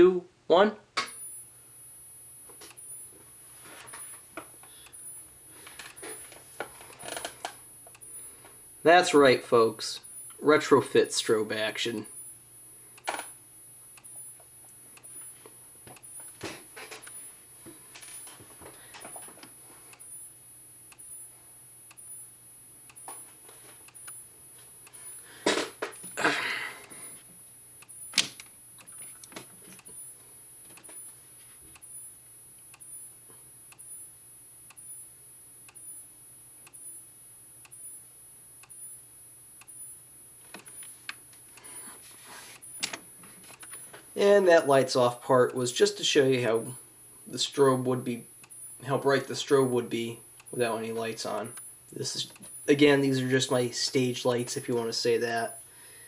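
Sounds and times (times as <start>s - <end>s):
high-pitched electronic whine: 1.0s - 55.6s
soft ticks of strobe: 1.2s - 25.3s, 26.8s - 41.8s, 42.5s - 55.6s
sharp click: 48.4s - 48.7s.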